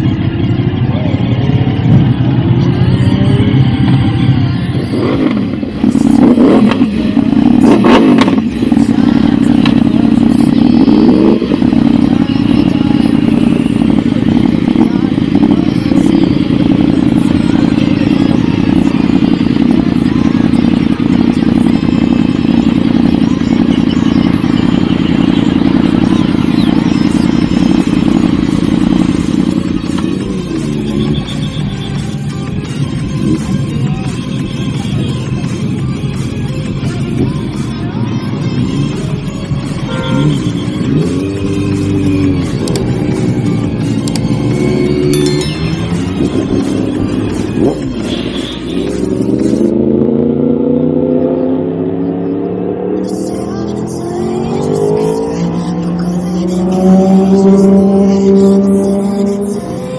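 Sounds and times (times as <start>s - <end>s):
motorcycle engines revving and idling: 0.0s - 59.9s
people talking: 0.8s - 5.2s, 8.8s - 22.0s, 52.4s - 59.9s.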